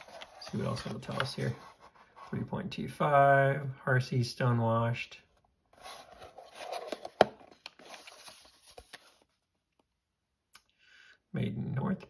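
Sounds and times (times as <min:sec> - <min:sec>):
cardboard box rustling and scraping: 0:05.8 - 0:09.2.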